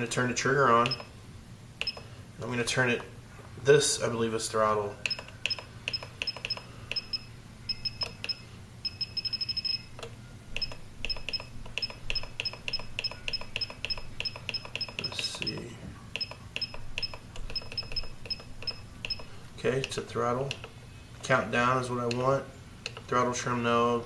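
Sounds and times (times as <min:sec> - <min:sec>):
short high beeps: 0:05.1 - 0:09.9
buttons clicking: 0:10.0 - 0:15.6.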